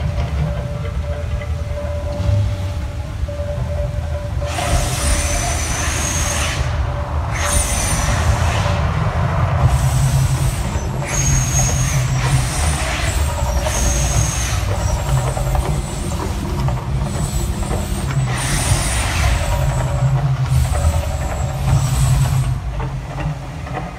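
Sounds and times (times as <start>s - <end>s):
deep rumble: 0.0s - 23.2s
gas flame jets whooshing: 4.4s - 22.7s.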